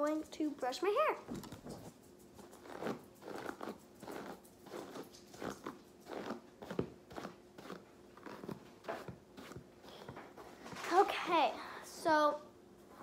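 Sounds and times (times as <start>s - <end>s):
hairbrush rasping through hair: 1.8s - 11.0s.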